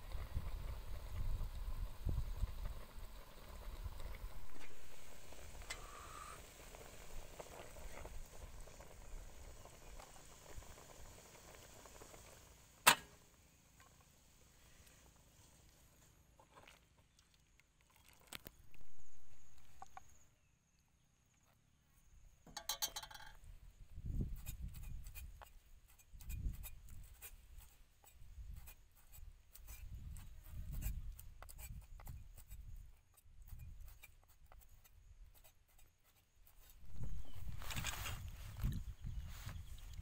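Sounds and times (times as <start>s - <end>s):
metal ladle clinking in pot: 22.5s - 23.4s.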